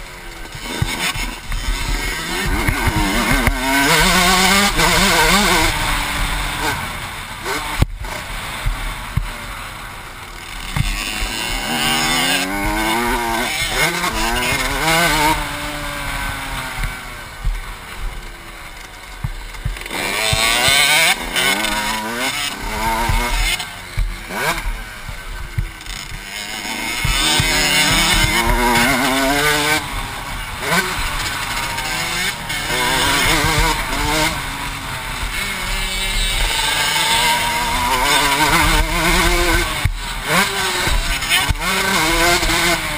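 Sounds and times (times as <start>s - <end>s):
motocross bike engine revving: 0.0s - 42.9s.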